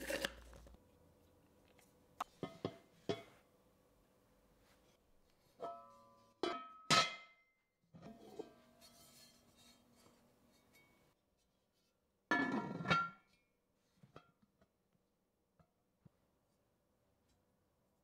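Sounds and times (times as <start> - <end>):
cast iron pot and lid clanking: 2.4 - 3.3, 5.6 - 7.3, 12.3 - 13.2.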